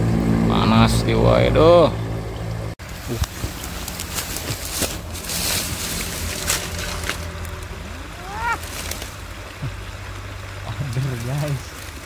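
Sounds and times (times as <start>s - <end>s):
low hum: 0.0s - 12.0s
river flowing over stones: 2.8s - 12.0s.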